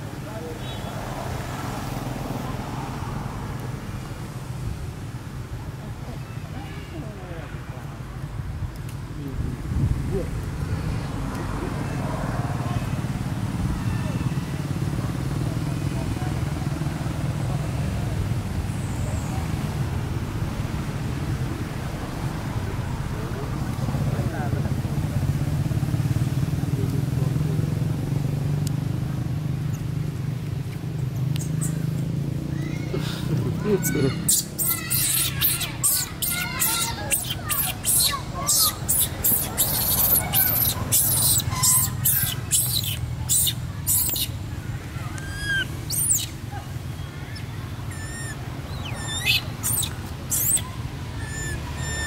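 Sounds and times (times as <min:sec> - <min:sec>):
baby monkey crying: 0:32.6 - 0:44.4, 0:45.1 - 0:46.3, 0:47.4 - 0:52.0.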